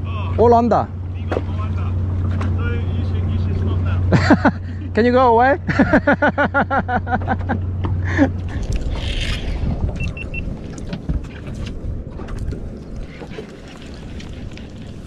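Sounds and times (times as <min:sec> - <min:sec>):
low motor hum: 0:00.0 - 0:15.0
water noise: 0:00.0 - 0:15.0
wind: 0:00.0 - 0:15.0
person laughing: 0:04.1 - 0:05.0, 0:05.7 - 0:08.7
short high beeps: 0:10.0 - 0:10.4.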